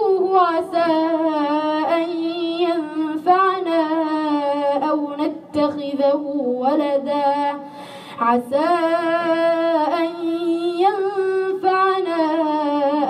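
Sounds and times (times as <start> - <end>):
boy chanting recitation: 0.0 - 7.6, 8.2 - 13.0
breath: 7.6 - 8.2.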